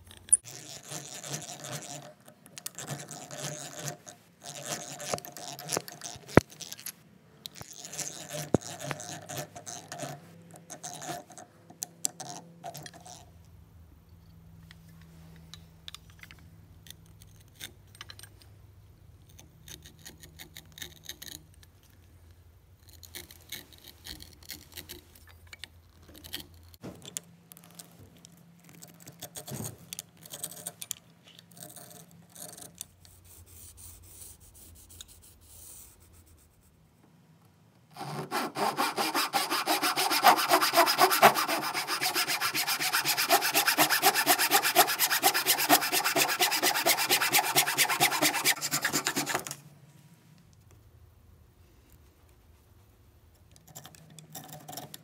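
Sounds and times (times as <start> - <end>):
hand saw cutting wood: 37.9 - 49.6.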